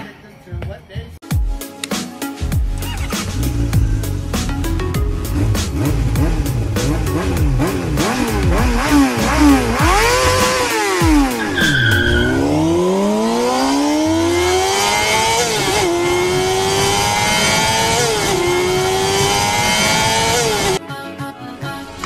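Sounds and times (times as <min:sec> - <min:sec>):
race car engine revving: 0:02.8 - 0:20.8
tire squeal: 0:11.3 - 0:13.0.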